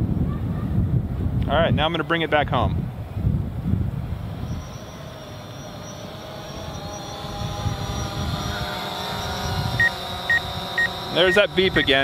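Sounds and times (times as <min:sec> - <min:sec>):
wind on microphone: 0:00.0 - 0:12.0
drone propellers whining: 0:03.4 - 0:12.0.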